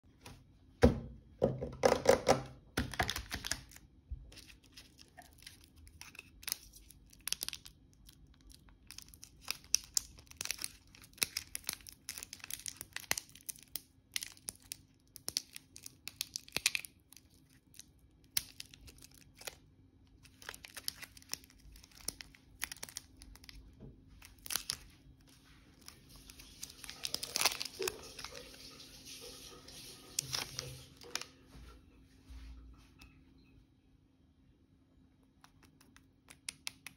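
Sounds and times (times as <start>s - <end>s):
plastic wrapper crinkling and tearing: 2.8s - 31.4s.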